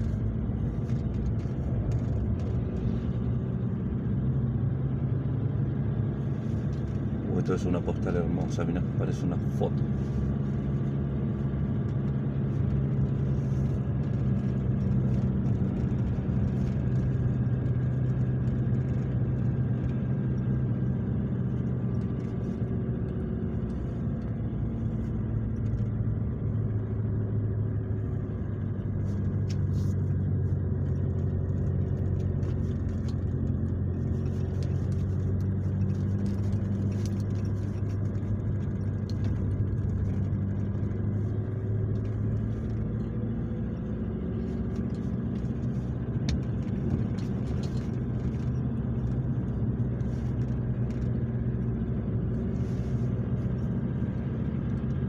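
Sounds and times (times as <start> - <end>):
car engine running: 0.0 - 55.0
tyre and road noise: 0.0 - 55.0.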